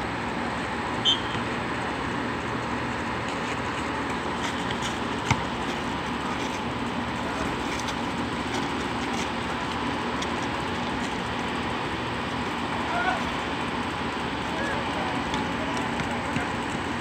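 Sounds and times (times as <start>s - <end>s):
steady background hum: 0.0s - 17.0s
basketball thud on concrete: 5.2s - 5.6s.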